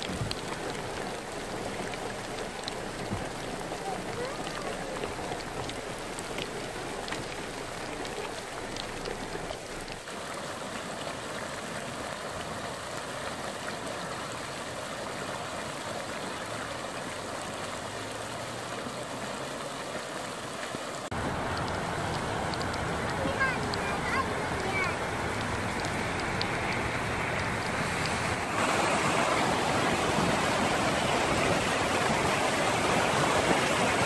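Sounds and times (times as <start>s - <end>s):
faint raindrop ticks: 0.0s - 10.1s, 17.0s - 28.5s
heavy rain hissing: 0.0s - 14.5s, 15.1s - 34.0s.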